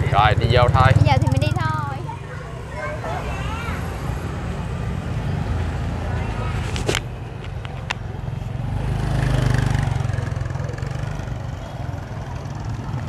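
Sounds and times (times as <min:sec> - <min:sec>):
motor vehicle passing by: 0:00.0 - 0:13.0.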